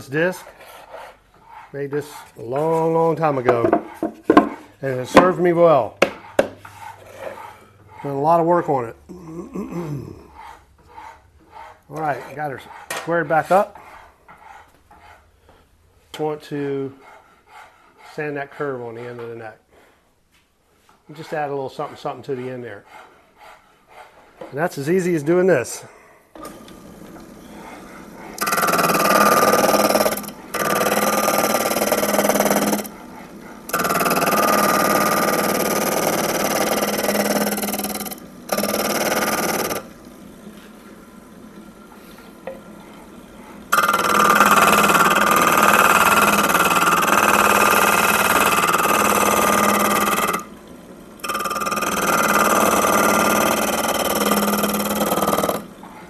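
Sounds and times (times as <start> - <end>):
wood sanding rasp: 0.0 - 8.8, 10.4 - 15.3, 16.2 - 19.9, 21.1 - 25.4, 27.0 - 39.9, 43.7 - 50.4, 51.3 - 56.0
disc sander humming: 26.4 - 56.0.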